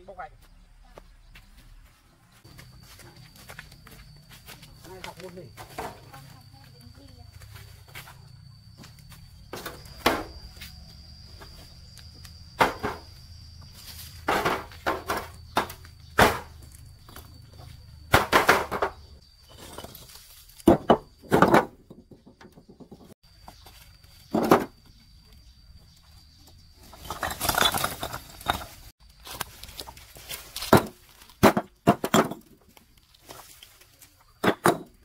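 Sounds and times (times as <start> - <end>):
trowel knocking and scraping bricks: 18.1 - 23.2, 26.9 - 28.9, 30.6 - 32.7, 34.4 - 35.0.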